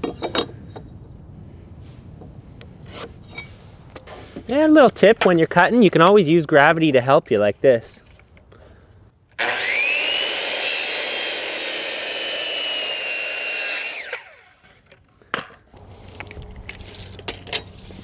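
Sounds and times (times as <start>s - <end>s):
circular saw cutting board: 9.4s - 14.8s.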